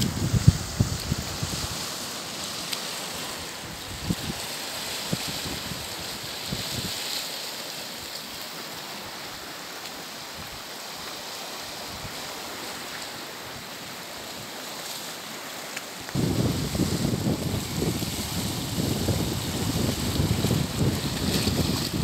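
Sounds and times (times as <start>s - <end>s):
wind buffeting microphone: 0.0s - 1.9s, 3.6s - 4.4s, 16.1s - 22.0s
sea surf on rocky shore: 0.0s - 22.0s.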